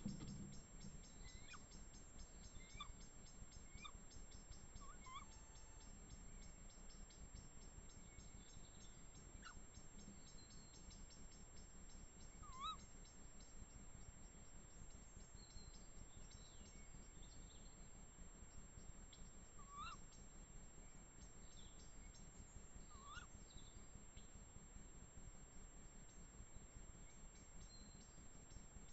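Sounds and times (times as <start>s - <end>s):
owl calls: 3.6s - 4.1s, 4.7s - 6.0s, 12.3s - 12.9s, 19.6s - 20.1s, 22.9s - 23.4s.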